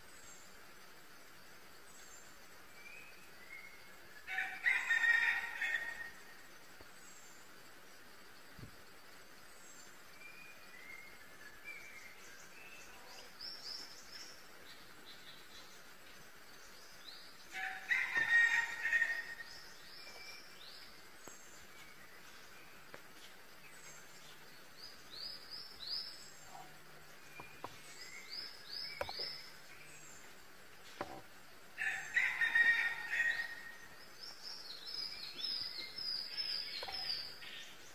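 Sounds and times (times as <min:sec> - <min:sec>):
birds chirping: 0:09.0 - 0:37.9.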